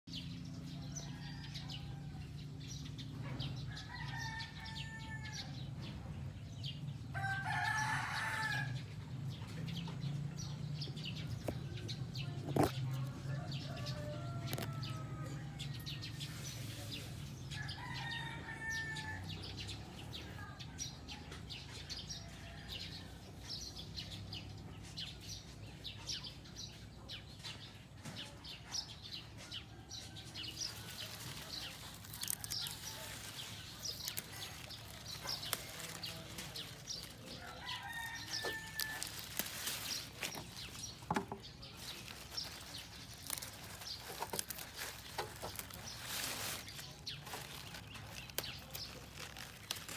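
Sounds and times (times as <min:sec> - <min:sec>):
birds chirping: 0:09.3 - 0:49.9
lettuce leaves rustling: 0:30.2 - 0:49.9.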